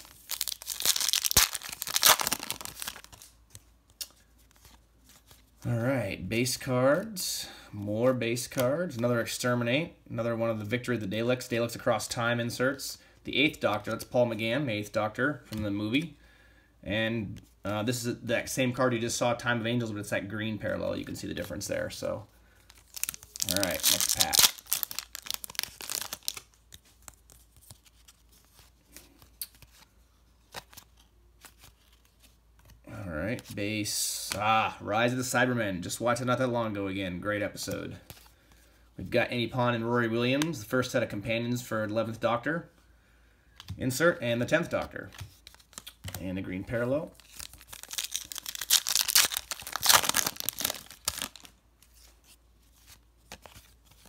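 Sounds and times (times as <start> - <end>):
foil wrapper tearing and crinkling: 0.0 - 3.4, 22.7 - 26.5, 47.2 - 51.6.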